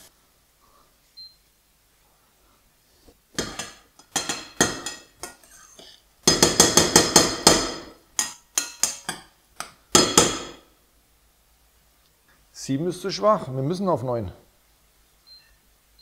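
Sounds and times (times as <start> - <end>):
metal utensil clinking on pot: 3.4 - 5.6, 6.3 - 9.3.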